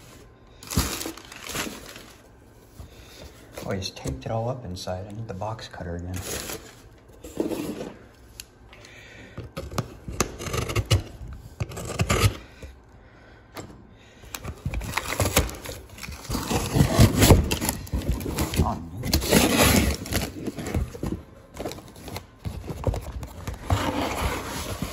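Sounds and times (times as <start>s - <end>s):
cardboard box scraping and rustling: 15.0s - 24.9s.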